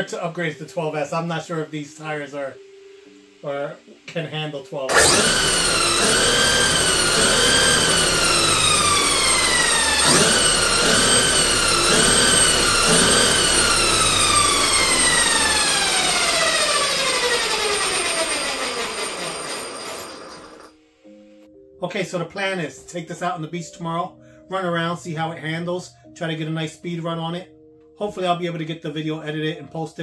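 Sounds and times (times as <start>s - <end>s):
electric motor whine: 4.9s - 20.7s.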